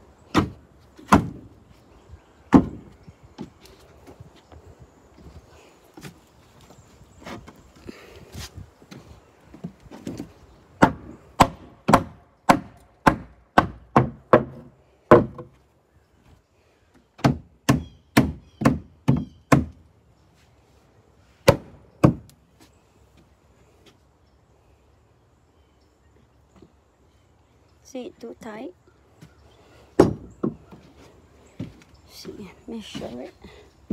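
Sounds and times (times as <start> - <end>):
hammer striking nails into wood: 10.8 - 15.5.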